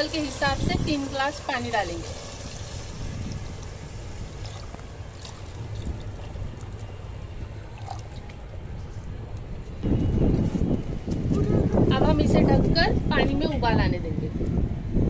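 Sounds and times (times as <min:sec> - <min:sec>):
water pouring into a pot: 0:00.0 - 0:08.5.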